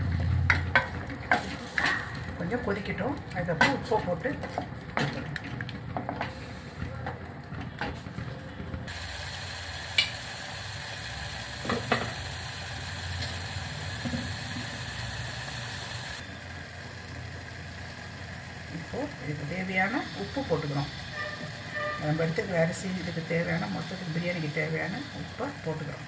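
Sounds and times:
sauce bubbling and sizzling: 8.9s - 18.7s.

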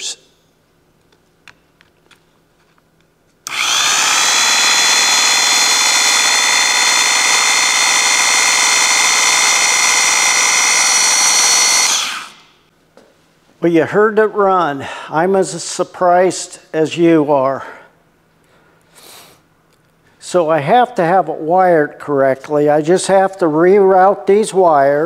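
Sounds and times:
electric saw motor whine: 3.5s - 12.5s.

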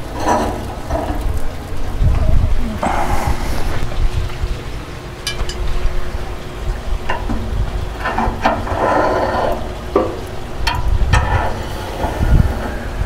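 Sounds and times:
low rumble: 0.0s - 13.0s
hiss: 11.1s - 13.0s.

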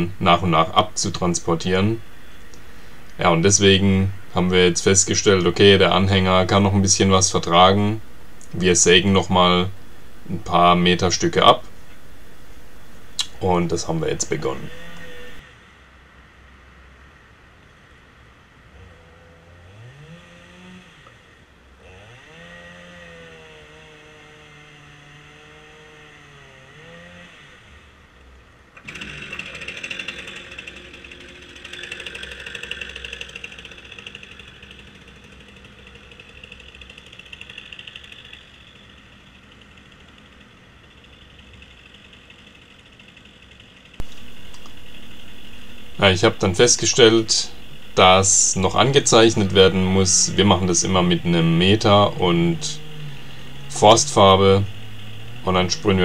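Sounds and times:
chainsaw cutting logs: 0.0s - 15.4s, 19.5s - 28.0s, 28.8s - 56.0s
rasping sawing: 14.1s - 15.4s, 28.8s - 38.4s, 44.0s - 56.0s.

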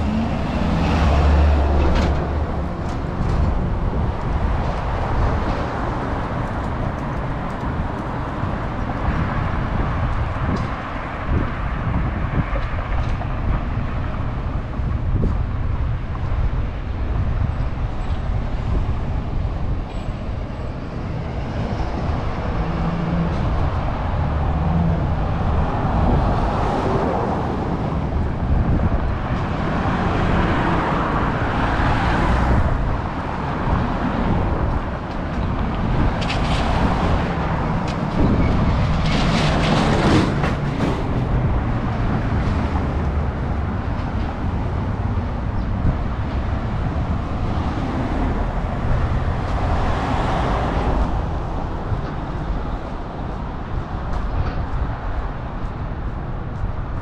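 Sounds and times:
cars driving past: 0.0s - 57.0s.

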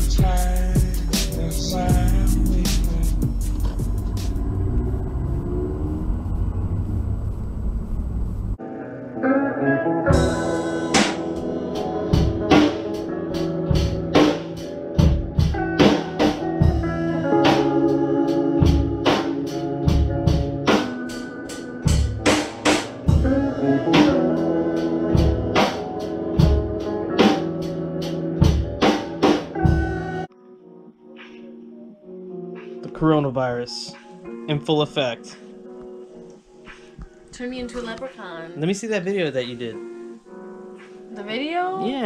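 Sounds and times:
drum kit beat: 0.0s - 4.6s, 10.1s - 30.3s
electric guitar chords: 0.0s - 32.8s.

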